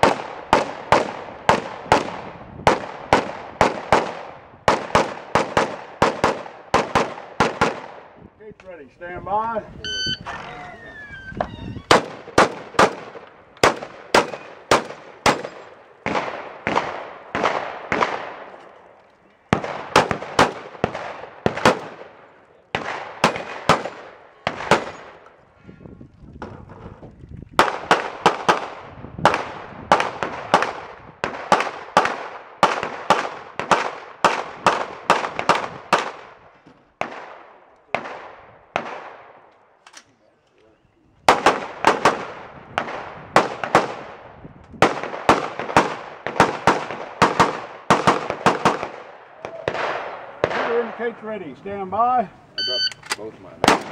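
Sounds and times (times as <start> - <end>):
gunshots with echo: 11.9 - 18.5, 19.5 - 25.2, 44.8 - 51.1.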